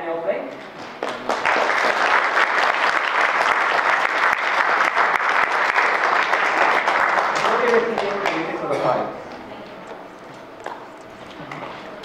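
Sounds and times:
audience applause: 0:00.7 - 0:08.7.

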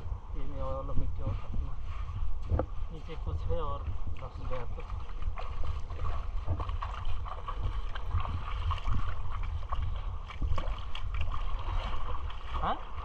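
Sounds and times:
wind on microphone: 0:00.0 - 0:13.0
small splashes: 0:04.2 - 0:13.0
water lapping around rocks: 0:04.2 - 0:13.0.

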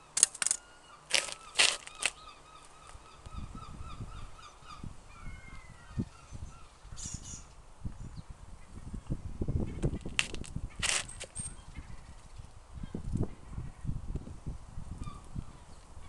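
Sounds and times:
rind cracking: 0:00.1 - 0:02.2
husk rustling and creaking: 0:01.1 - 0:03.0, 0:10.0 - 0:11.5.

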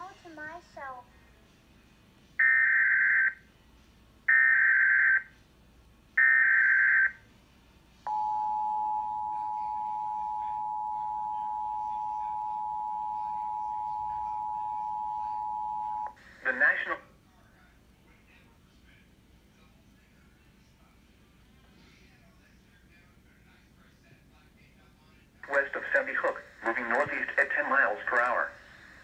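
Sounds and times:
two-tone attention signal: 0:08.1 - 0:16.1.

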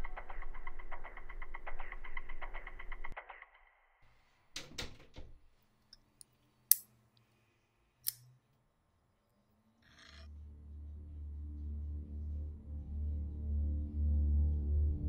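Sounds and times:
sunglasses hinge clicks: 0:08.0 - 0:08.2
low drone: 0:10.0 - 0:15.0.

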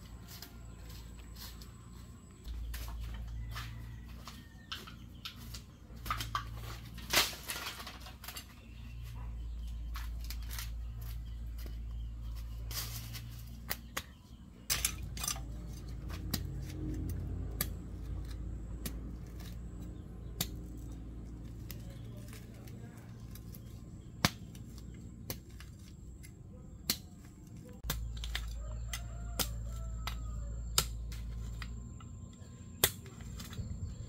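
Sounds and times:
footsteps on dry leaves: 0:00.0 - 0:07.5, 0:09.0 - 0:13.7.

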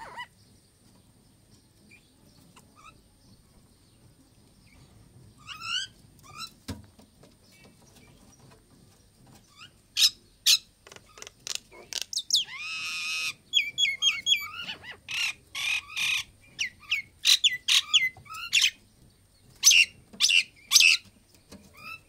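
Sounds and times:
myna calling: 0:00.0 - 0:00.3, 0:10.0 - 0:18.8.

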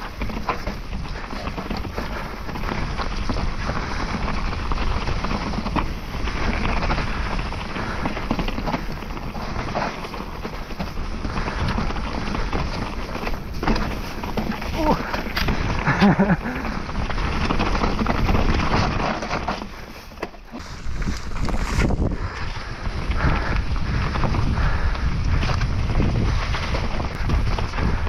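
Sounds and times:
bike rattles and knocks: 0:00.0 - 0:28.0
tyres on dirt trail: 0:00.0 - 0:28.0
wind on microphone: 0:20.6 - 0:28.0.

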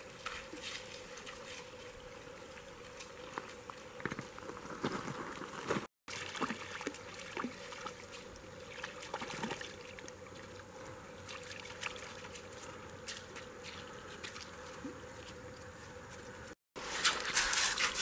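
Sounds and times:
creek trickling: 0:04.8 - 0:15.6
puppy paws splashing in water: 0:06.1 - 0:15.6.

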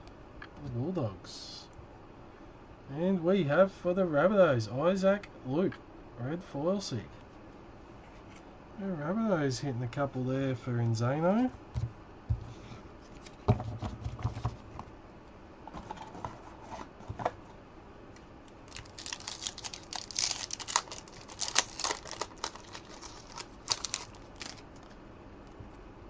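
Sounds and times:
cards rustling and crinkling: 0:18.6 - 0:25.0.

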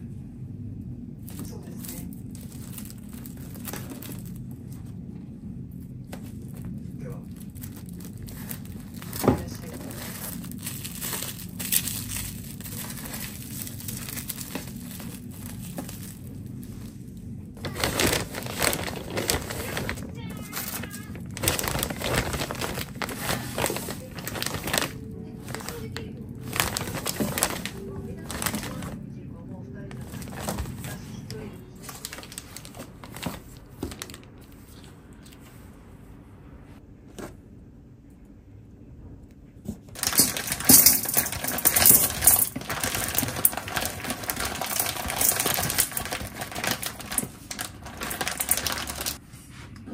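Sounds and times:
plastic cling wrap crinkling: 0:01.3 - 0:04.5, 0:06.2 - 0:29.0, 0:29.9 - 0:34.6, 0:39.9 - 0:49.2
freezer bag rustling: 0:01.3 - 0:04.9, 0:06.2 - 0:29.0, 0:29.9 - 0:34.9, 0:39.9 - 0:49.2.

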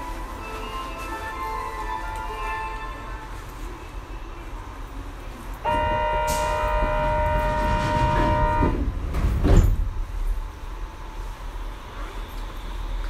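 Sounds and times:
doors shutting thud: 0:05.7 - 0:10.0.

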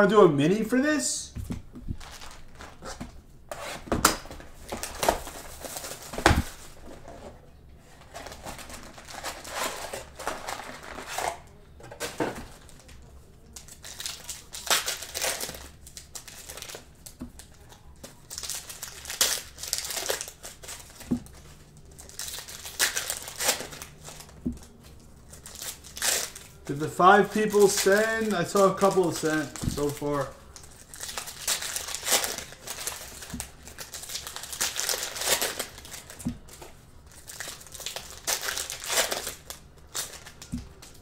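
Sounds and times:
plastic wrapping crinkling: 0:01.8 - 0:03.1, 0:04.1 - 0:07.2, 0:07.9 - 0:41.0.

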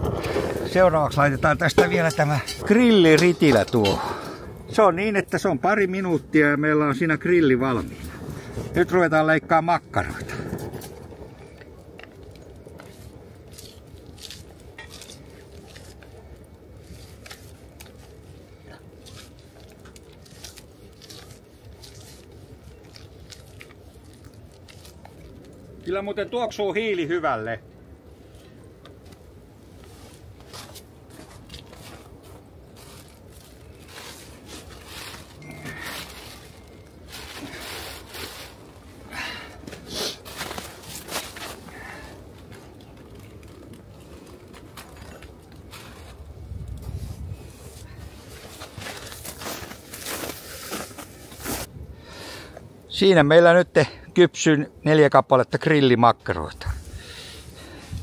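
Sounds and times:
steady low rumble: 0:00.0 - 0:25.9
footsteps crunching in snow: 0:29.8 - 0:39.0, 0:39.6 - 0:42.7, 0:44.6 - 0:51.7
plastic bag rustling: 0:30.0 - 0:46.5.

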